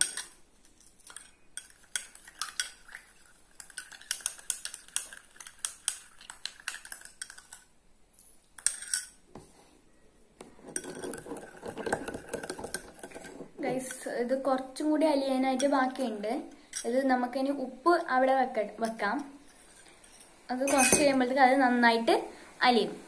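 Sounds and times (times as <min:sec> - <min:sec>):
spoon stirring in a bowl: 0:00.0 - 0:07.7, 0:08.5 - 0:09.5, 0:10.4 - 0:14.2, 0:19.2 - 0:21.2.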